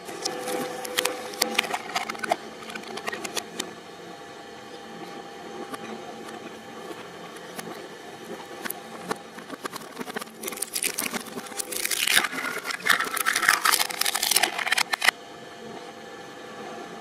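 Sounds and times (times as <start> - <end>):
blades crunching plastic: 0.0 - 3.6, 8.4 - 15.1
shredder humming: 0.0 - 17.0.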